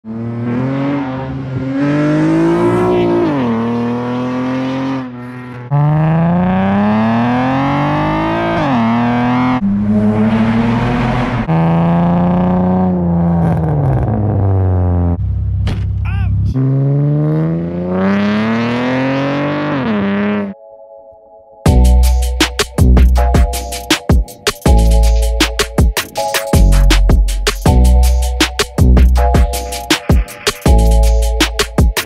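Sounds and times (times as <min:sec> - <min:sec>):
car engine accelerating: 0:00.0 - 0:20.6.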